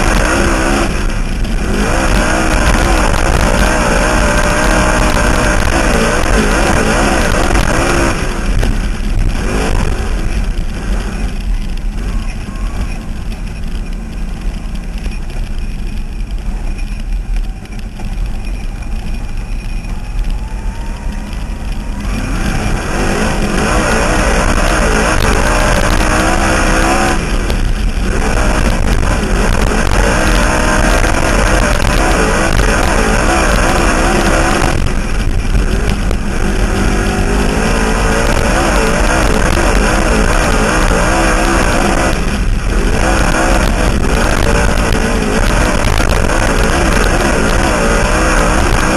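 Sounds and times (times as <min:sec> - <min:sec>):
race car engine: 0:00.0 - 0:48.9
rock music: 0:21.5 - 0:34.7.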